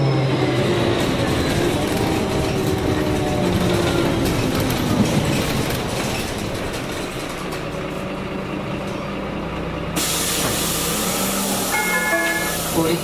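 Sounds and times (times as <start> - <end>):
bus engine running: 0.0 - 13.0
compressed air hiss: 10.0 - 13.0.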